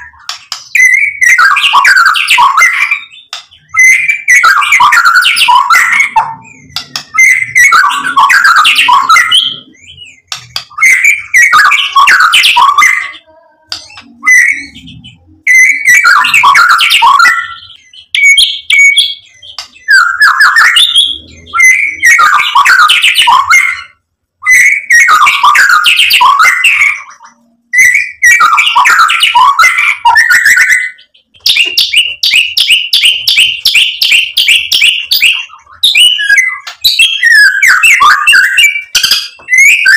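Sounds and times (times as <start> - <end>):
bird singing varied song: 0.0 - 39.9
fast bird trill: 0.0 - 39.9.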